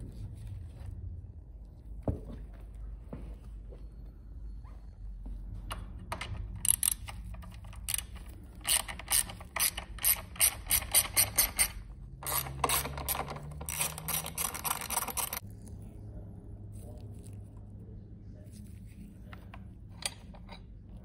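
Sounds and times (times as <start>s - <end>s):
ratchet clicking: 6.2s - 15.4s.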